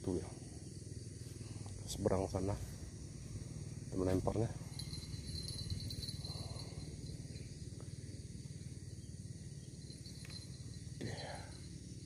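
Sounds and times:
insects trilling: 0.0s - 12.0s
low steady rumble: 0.0s - 12.0s
faint ticks: 10.0s - 11.1s.

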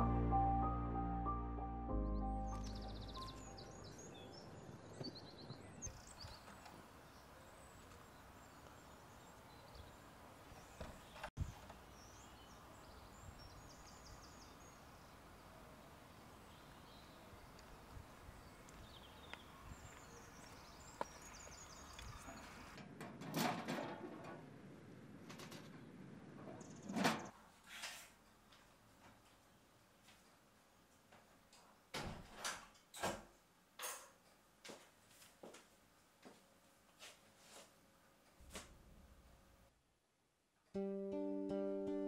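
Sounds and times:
distant birds chirping: 0.0s - 22.8s.

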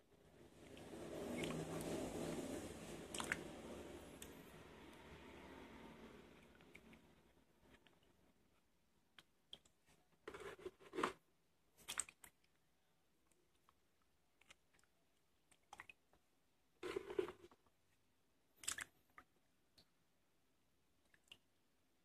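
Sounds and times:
water sloshing in a plastic basin: 0.4s - 4.5s, 9.5s - 12.6s, 16.8s - 17.7s, 18.5s - 19.4s
hand scrubbing tubers: 16.8s - 17.6s.

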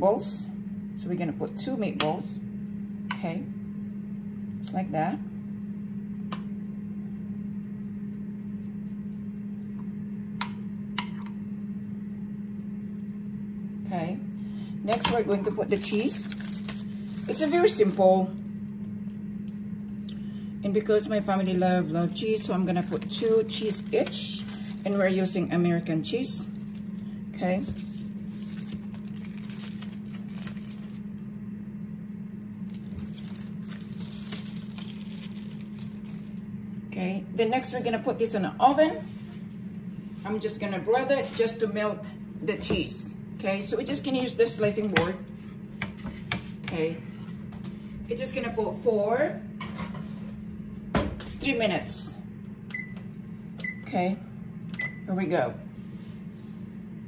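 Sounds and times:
steady low hum: 0.0s - 57.0s
cheese slices rustling: 27.6s - 31.0s, 32.6s - 36.4s.

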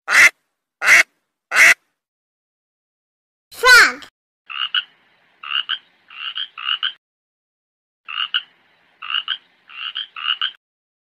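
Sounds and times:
frog croaking: 4.5s - 7.0s, 8.1s - 10.6s.

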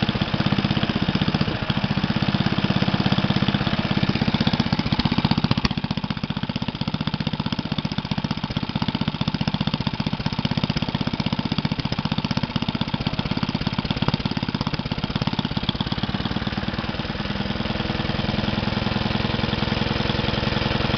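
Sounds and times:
small engine running: 0.0s - 20.9s.

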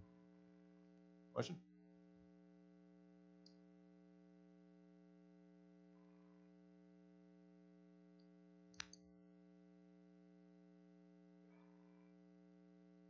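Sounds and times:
faint electrical hum: 0.0s - 13.0s
sharp click: 8.2s - 9.0s.

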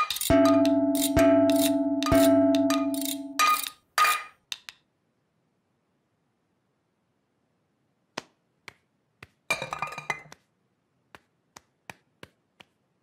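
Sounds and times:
metal saucepans clattering: 9.5s - 10.3s.

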